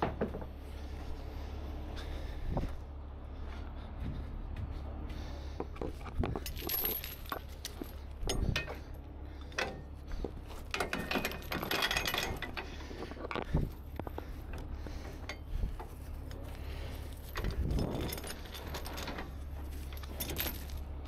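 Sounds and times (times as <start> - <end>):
steady low hum: 0.0 - 21.0
metal chain clinking and rattling: 6.2 - 13.9, 14.5 - 21.0.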